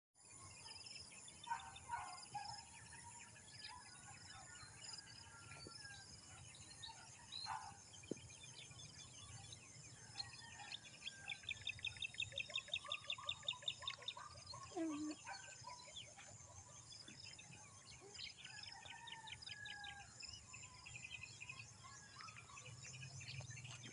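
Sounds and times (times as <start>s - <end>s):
bird calls: 5.9s - 23.9s
bird repeated chirps: 11.2s - 18.1s.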